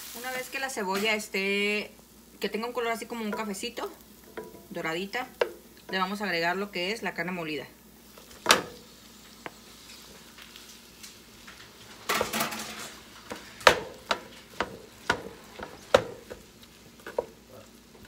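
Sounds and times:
faint sizzle: 0.0 - 18.0
spoon knocking on pan: 3.2 - 3.6, 4.2 - 6.2, 13.3 - 17.5.

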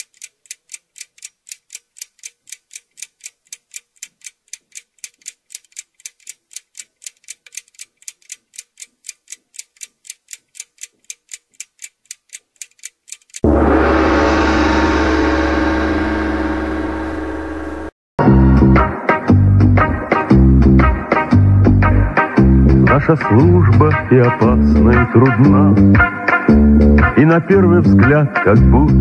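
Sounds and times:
fast clock-like ticking: 0.0 - 13.4.

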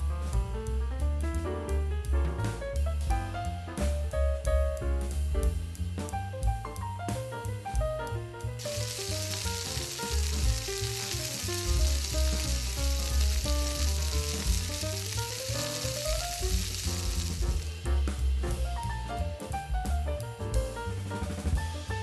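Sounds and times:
background music with drum beat: 0.0 - 22.0
meat sizzling in oil: 8.6 - 18.6.

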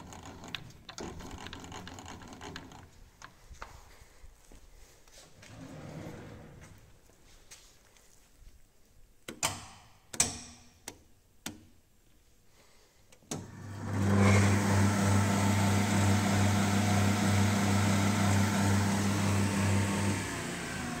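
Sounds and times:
woodworking machine motor humming: 13.4 - 21.0.

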